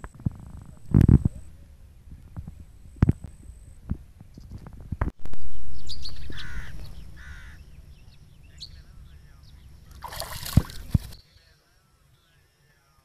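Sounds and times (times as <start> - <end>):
low outdoor rumble: 0.0 - 13.0
loud low rumble: 5.3 - 11.2
crow cawing: 6.2 - 7.8.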